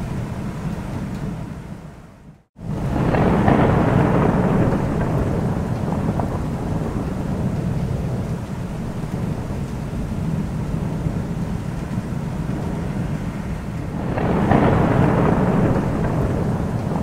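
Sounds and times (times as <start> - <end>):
steady rain: 0.0 - 17.0
thunder rumbling: 0.0 - 17.0.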